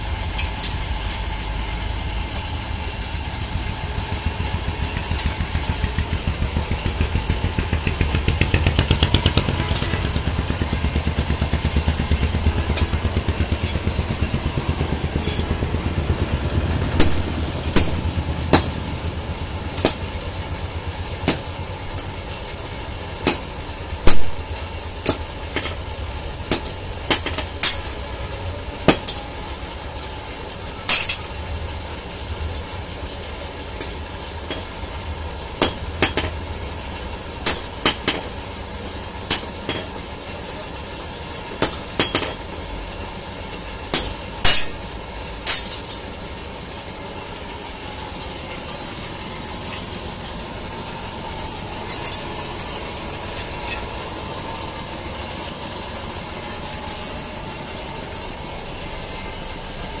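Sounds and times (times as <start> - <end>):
steady background hum: 0.0 - 60.0
hammer striking iron on anvil: 3.5 - 15.9, 17.0 - 18.9, 19.7 - 20.2, 21.2 - 22.2, 23.2 - 23.5, 24.1 - 25.8, 26.5 - 28.0, 28.8 - 29.3, 30.9 - 31.4, 33.8 - 34.7, 35.6 - 36.4, 37.4 - 38.4, 39.3 - 40.0, 41.6 - 42.5, 43.9 - 44.8, 45.5 - 46.0.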